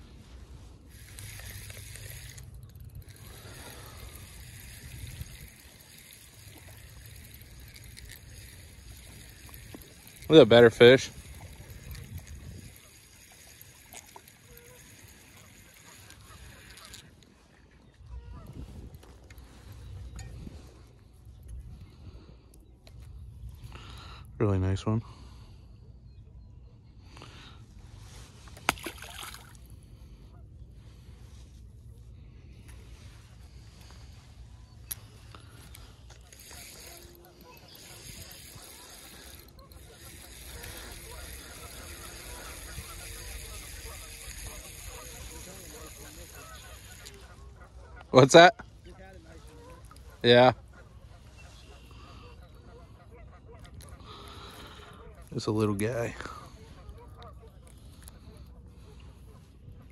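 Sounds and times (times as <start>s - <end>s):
spinning reel cranking: 0.9s - 17.2s, 34.9s - 47.4s
wind rumble on microphone: 10.7s - 13.2s, 17.8s - 23.8s
fish slapping the water: 28.4s - 29.7s
water splash: 28.6s - 29.6s.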